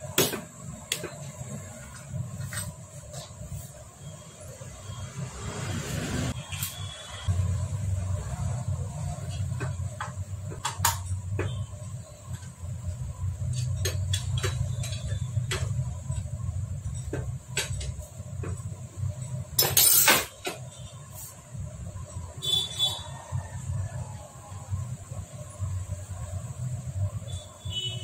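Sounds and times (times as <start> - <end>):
metal tools clinking on engine: 19.6 - 20.4.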